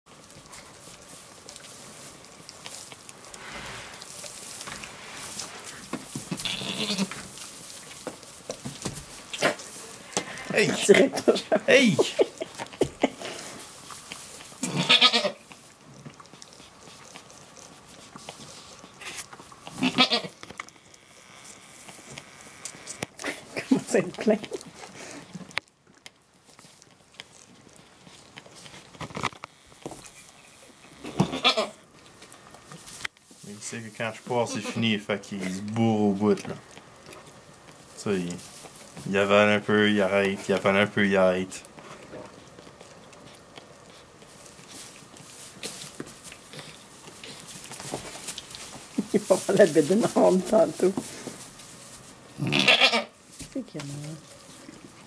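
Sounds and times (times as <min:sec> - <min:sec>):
goat kid sucking from bottle: 0:00.3 - 0:10.6, 0:12.4 - 0:23.7, 0:41.8 - 0:49.0
goat bleating: 0:06.3 - 0:07.2, 0:14.6 - 0:15.4, 0:19.8 - 0:20.4, 0:31.0 - 0:31.8, 0:34.4 - 0:35.0, 0:52.4 - 0:53.2.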